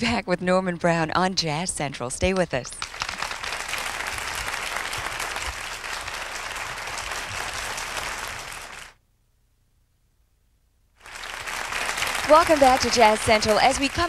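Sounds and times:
audience applauding: 2.8 - 9.0, 11.0 - 14.0.

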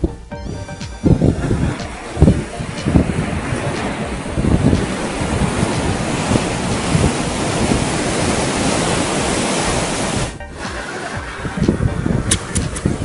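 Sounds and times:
wind blowing over microphone: 0.0 - 13.0
ocean surf: 1.0 - 13.0.

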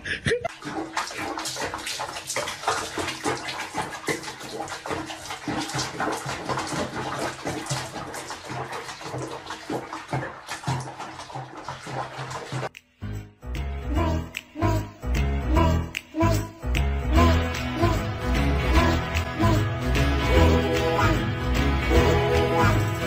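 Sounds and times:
water splashing in sink: 0.4 - 12.8.

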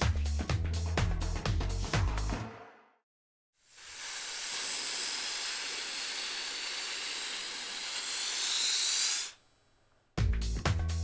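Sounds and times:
steady high-pitched hiss: 3.6 - 10.1.

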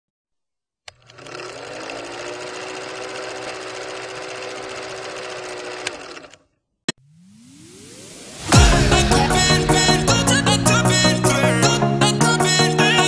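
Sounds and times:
film projector clattering: 0.9 - 6.4.

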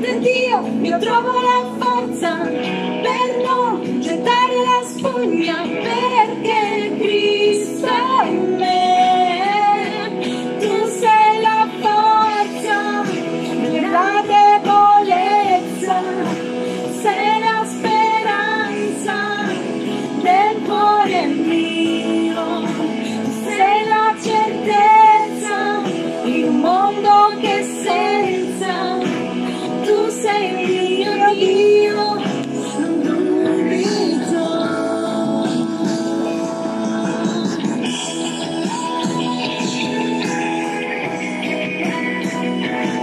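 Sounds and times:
woman singing: 0.0 - 37.9.

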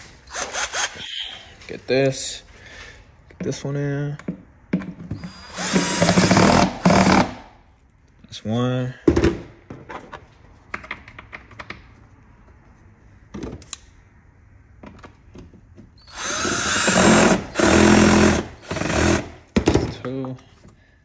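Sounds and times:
cordless drill driving a screw: 0.3 - 1.0, 5.2 - 7.4, 16.0 - 19.3.

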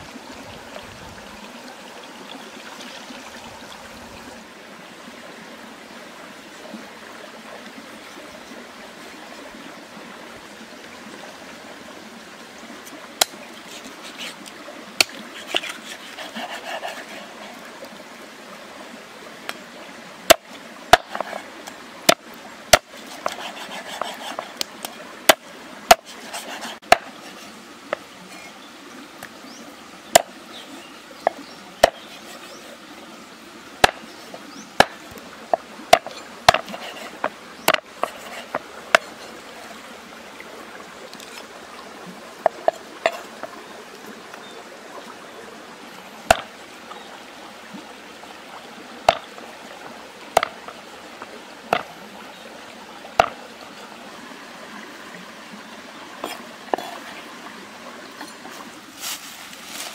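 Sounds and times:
background hiss: 0.0 - 59.9
cleaver chopping on wooden board: 25.3 - 26.1, 31.3 - 32.0, 34.8 - 35.0, 35.9 - 38.2, 50.4 - 50.6.

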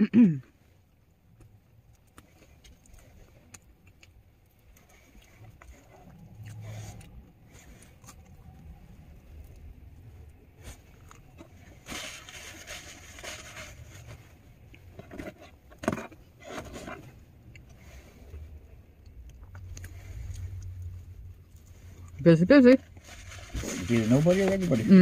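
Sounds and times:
low vehicle rumble: 4.5 - 25.0
paper wrapper rustling: 22.8 - 25.0.

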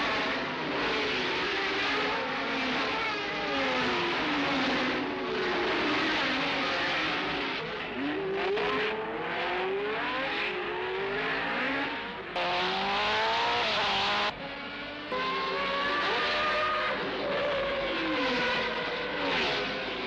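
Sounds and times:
racing car engines revving: 0.0 - 20.0.

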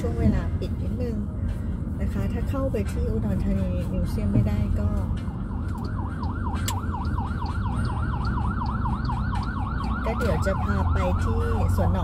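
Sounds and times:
engine and road rumble: 0.0 - 12.0
siren yelping: 5.3 - 12.0.

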